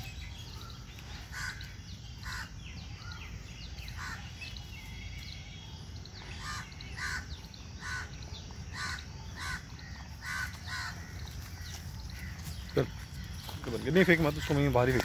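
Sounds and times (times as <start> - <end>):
small birds chirping: 0.0 - 15.0
crows cawing: 1.1 - 3.2, 6.3 - 15.0.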